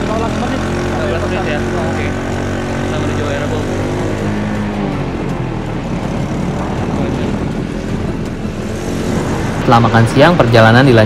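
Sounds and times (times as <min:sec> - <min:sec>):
motorcycle engine running: 0:00.0 - 0:11.0
wind rushing over microphone: 0:04.7 - 0:11.0.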